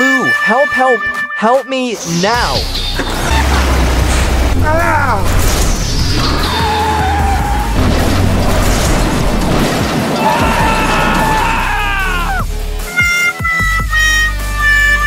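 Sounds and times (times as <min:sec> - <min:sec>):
background music: 0:00.0 - 0:15.0
crash and rumble sound effect: 0:03.1 - 0:11.9.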